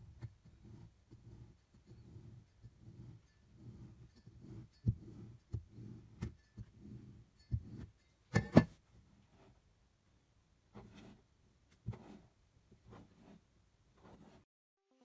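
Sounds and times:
knife scraping through crumbly block: 0.0s - 8.0s.

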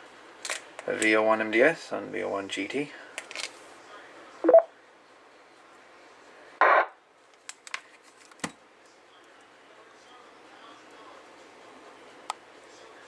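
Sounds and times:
short blip: 4.4s - 4.7s.

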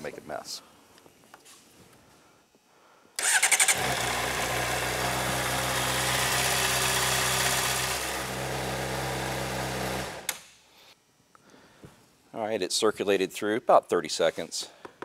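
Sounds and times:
electric starter cranking: 3.2s - 10.4s.

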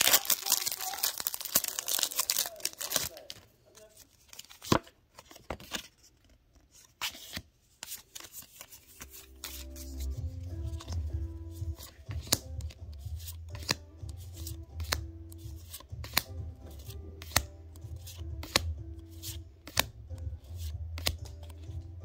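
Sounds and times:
background music: 8.7s - 22.0s.

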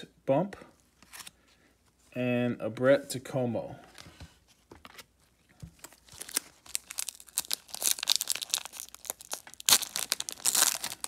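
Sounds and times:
wrapper crinkling and tearing: 5.8s - 11.0s.

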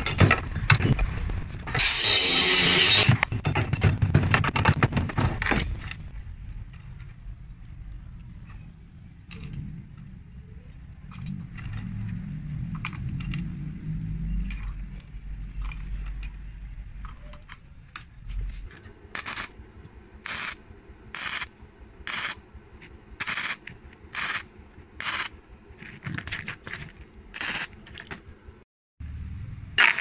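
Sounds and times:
angle grinder cutting wire: 1.7s - 3.3s, 19.2s - 19.5s, 20.2s - 21.5s, 22.1s - 22.4s, 23.2s - 28.2s.

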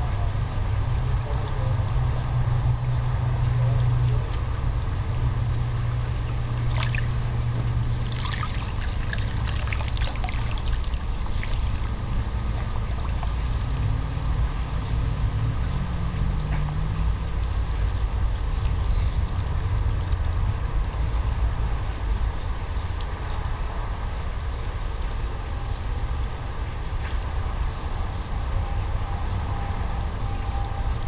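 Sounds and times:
steady low hum: 0.0s - 31.0s
pool water sloshing and splashing: 6.3s - 13.9s
small splashes: 6.5s - 13.9s.

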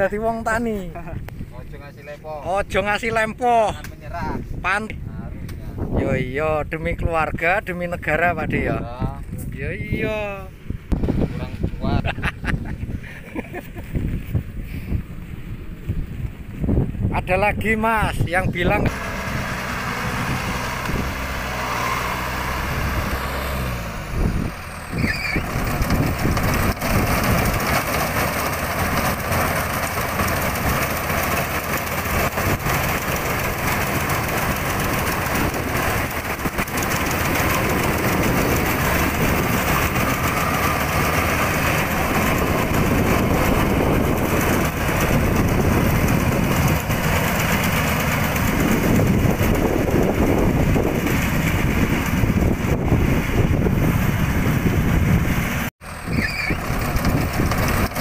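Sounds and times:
combine harvester diesel engine: 13.9s - 58.0s.

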